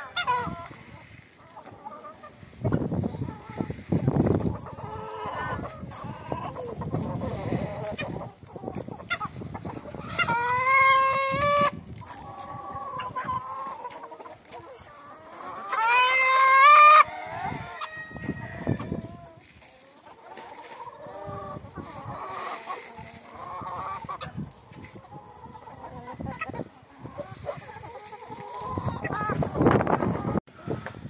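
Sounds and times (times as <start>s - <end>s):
rustling and scuffling at feed: 0.0s - 30.0s
hens clucking: 0.0s - 30.9s
rooster crowing: 16.0s - 18.9s.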